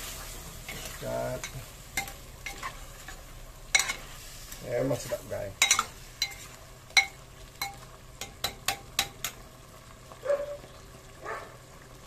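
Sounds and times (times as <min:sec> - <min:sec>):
sauce sizzling: 0:00.0 - 0:12.0
ladle scraping pot: 0:00.7 - 0:04.2, 0:05.0 - 0:09.4
metal ladle clinking clay pot: 0:05.6 - 0:06.4, 0:07.0 - 0:09.4.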